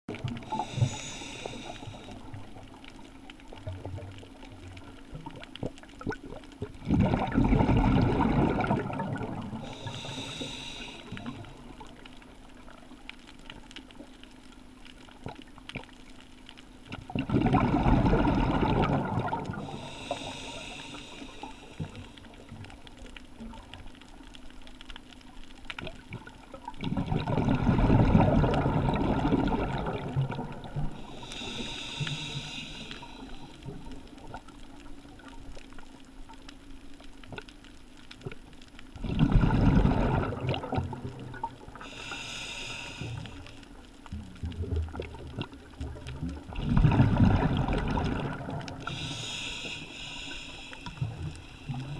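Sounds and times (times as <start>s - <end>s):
hissing regulator inhalation: 0.5s - 2.2s, 9.6s - 11.4s, 19.6s - 22.2s, 31.0s - 33.6s, 41.8s - 43.6s, 48.8s - 51.9s
bubbling exhalation underwater: 6.0s - 9.8s, 17.0s - 19.8s, 26.2s - 31.0s, 39.0s - 42.0s, 44.5s - 49.0s.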